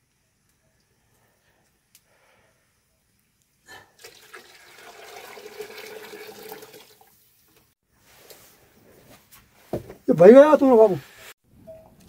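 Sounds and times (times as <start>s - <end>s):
running water: 4.0s - 7.7s.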